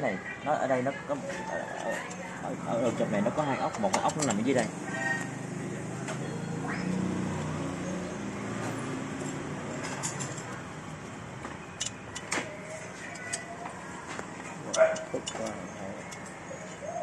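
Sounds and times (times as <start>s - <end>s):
passing vehicle engine hum: 2.2s - 12.2s.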